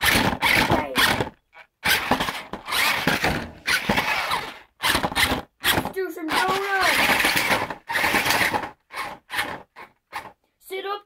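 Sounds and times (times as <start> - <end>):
toy truck electric motor whirring: 0.0 - 10.4.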